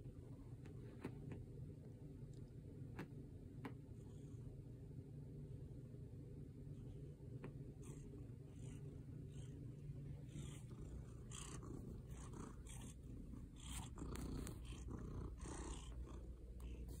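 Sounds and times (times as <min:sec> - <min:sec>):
cat purring: 0:06.7 - 0:17.0.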